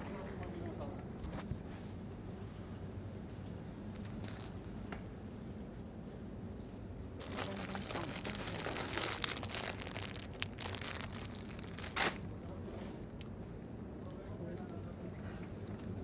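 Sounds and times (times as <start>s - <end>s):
low steady supermarket hum: 0.0s - 16.0s
plastic bags crinkling: 4.0s - 4.6s, 7.2s - 12.4s.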